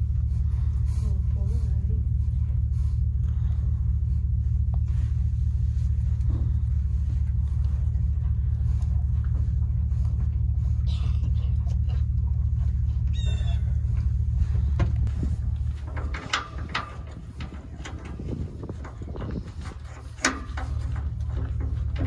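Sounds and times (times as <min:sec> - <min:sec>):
vehicle engine idling: 0:00.0 - 0:22.0
horses knocking in metal trailer: 0:13.4 - 0:22.0.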